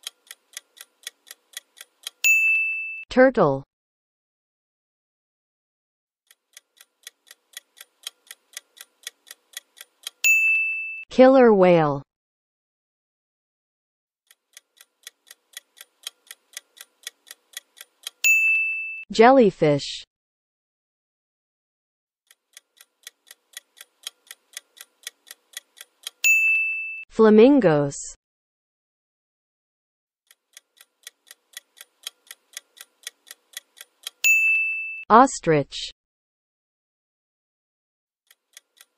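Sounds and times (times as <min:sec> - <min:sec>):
clock-like ticking: 0:00.0 - 0:02.6, 0:06.3 - 0:10.6, 0:14.3 - 0:18.6, 0:22.3 - 0:26.6, 0:30.3 - 0:34.6, 0:38.3 - 0:38.9
bright bell ding: 0:02.2 - 0:03.0, 0:10.3 - 0:11.0, 0:26.2 - 0:27.0, 0:34.2 - 0:35.0.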